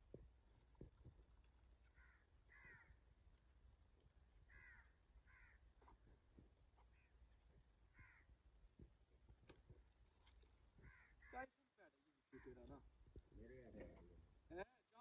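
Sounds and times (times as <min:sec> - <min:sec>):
crows cawing: 0:01.9 - 0:03.0, 0:04.4 - 0:06.0, 0:06.9 - 0:07.2, 0:07.9 - 0:08.4, 0:10.8 - 0:11.5, 0:12.3 - 0:12.8.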